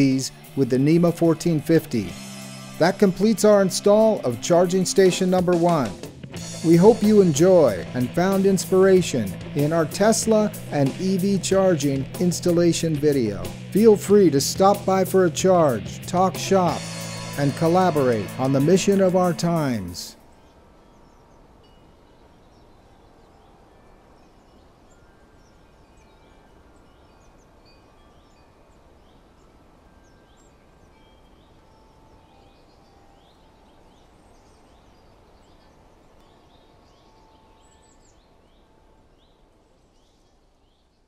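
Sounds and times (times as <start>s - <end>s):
bird chirps: 16.7s - 41.0s.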